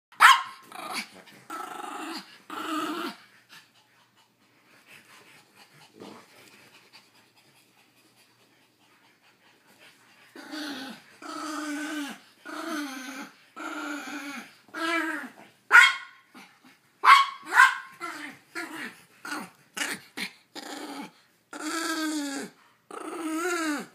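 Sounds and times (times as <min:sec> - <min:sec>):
small dogs growling: 0:00.6 - 0:03.8, 0:10.3 - 0:15.6, 0:18.0 - 0:23.9.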